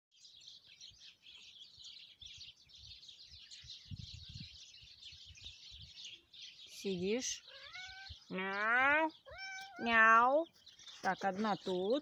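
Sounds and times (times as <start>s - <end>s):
songbirds twittering and chirping: 0.1s - 12.0s.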